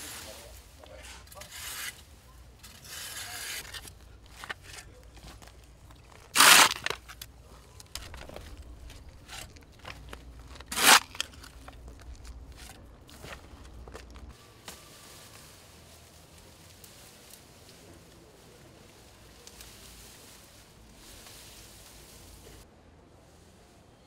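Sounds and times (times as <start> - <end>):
hand shovel scraping earth: 0.0 - 7.3, 7.9 - 16.1
loud shovel strikes: 6.3 - 7.0, 10.7 - 11.2.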